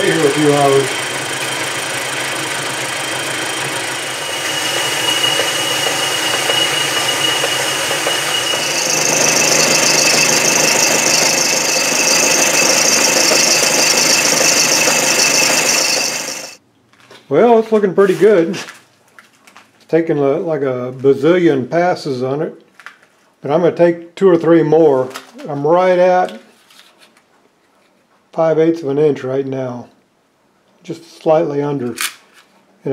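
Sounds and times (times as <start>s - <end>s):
metal lathe cutting with squeal: 0.0s - 16.6s.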